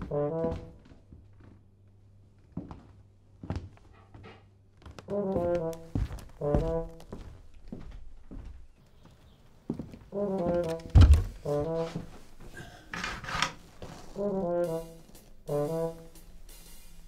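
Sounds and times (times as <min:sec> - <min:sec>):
brass film music: 0:00.0 - 0:01.4, 0:05.1 - 0:07.6, 0:10.1 - 0:17.0.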